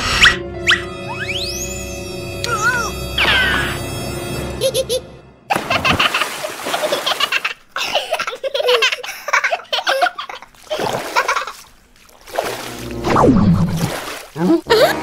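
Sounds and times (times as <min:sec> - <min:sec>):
children laughing: 0:04.6 - 0:11.6, 0:14.4 - 0:15.0
cartoon splashing sound effects: 0:12.3 - 0:15.0
baby giggling: 0:14.4 - 0:15.0.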